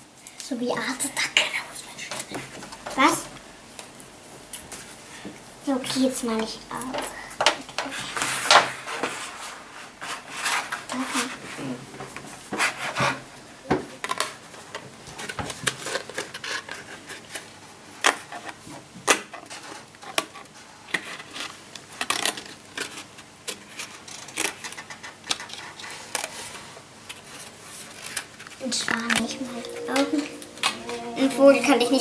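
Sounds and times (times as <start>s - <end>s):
paper rustling: 5.9s - 11.8s, 14.1s - 29.6s
scissors snipping paper: 22.0s - 26.4s.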